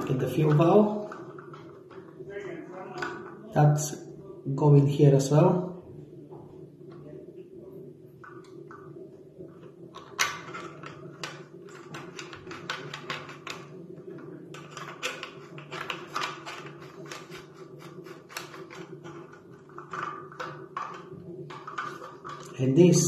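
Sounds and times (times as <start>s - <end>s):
steady low hum: 0.0s - 23.0s
small plastic clicks and rattles: 10.0s - 22.5s.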